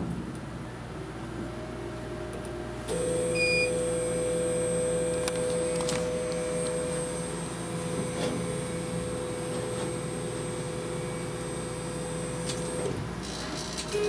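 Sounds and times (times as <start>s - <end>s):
laser cutter humming: 0.5s - 14.0s.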